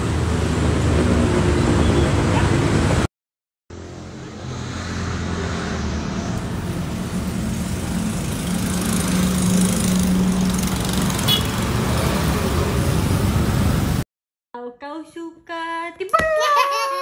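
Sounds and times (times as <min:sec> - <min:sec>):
traffic noise: 0:00.0 - 0:03.1, 0:03.7 - 0:14.0.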